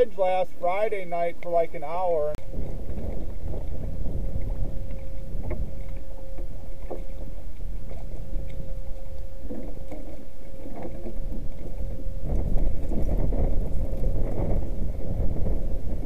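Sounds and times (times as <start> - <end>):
faint steady hum: 0.0 - 16.0
wind rumbling on microphone: 0.0 - 16.0
water lapping at canoe: 1.4 - 16.0
paddle knocking against hull: 2.4 - 8.7, 9.4 - 16.0.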